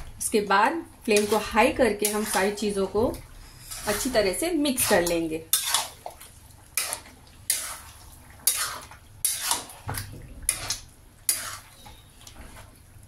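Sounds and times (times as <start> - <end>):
spoon scraping metal pot: 1.1 - 2.8, 3.4 - 6.0, 6.8 - 9.8, 10.5 - 12.1.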